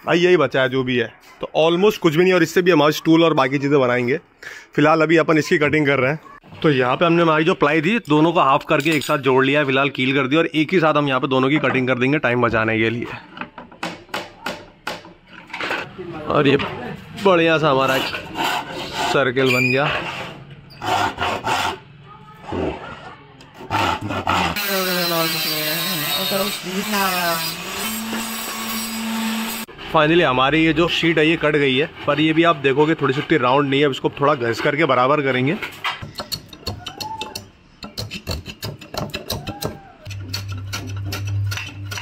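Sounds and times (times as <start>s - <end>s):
hand tool scraping wood: 17.8s - 21.8s.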